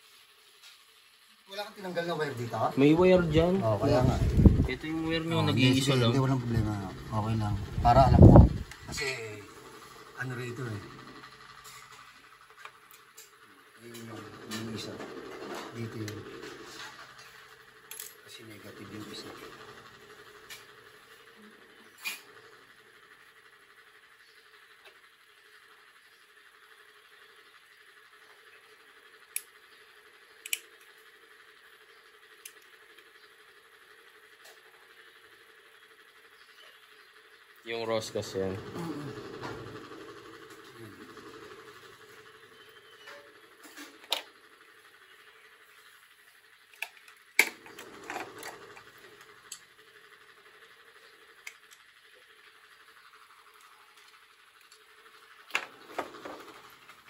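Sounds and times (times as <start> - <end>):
faint steady hum: 0.0 - 57.0
small metallic clicks: 30.4 - 30.9.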